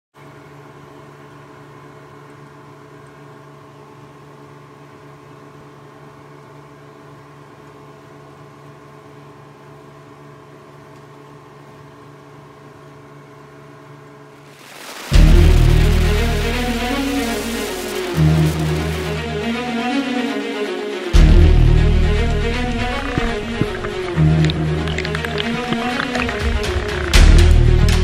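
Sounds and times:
outboard engine running: 14.6 - 19.7, 21.1 - 27.9.

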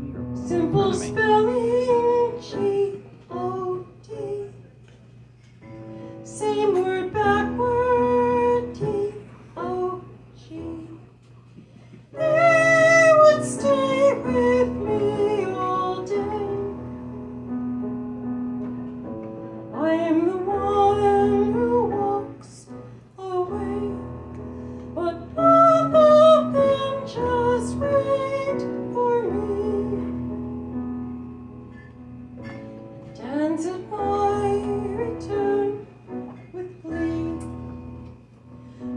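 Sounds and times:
woman singing slow song: 0.0 - 4.8, 6.2 - 11.3, 12.1 - 17.3, 19.7 - 30.7, 33.1 - 38.1.

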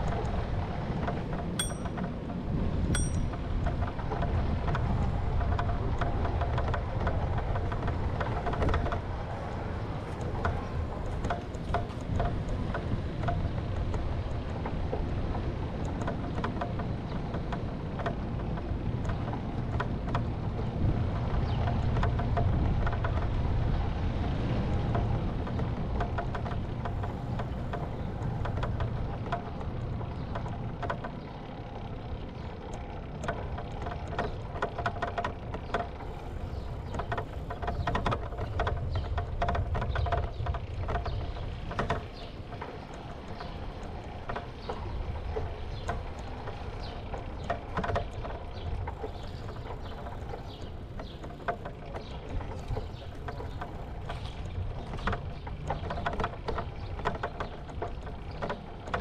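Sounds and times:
bicycle clicks and rattles: 0.0 - 59.0
bicycle tyre rumble: 0.0 - 59.0
wind buffeting microphone: 0.0 - 59.0.

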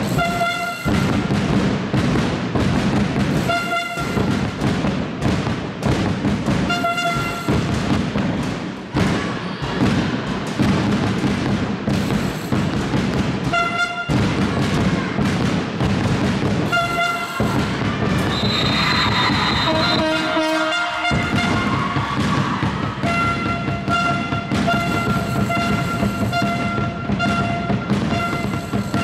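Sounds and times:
horn blasts: 0.0 - 1.3, 3.4 - 4.4, 6.7 - 7.6, 13.4 - 14.2, 16.7 - 21.9, 23.0 - 29.0
crowd noise: 0.0 - 29.0
drumming: 0.0 - 29.0.

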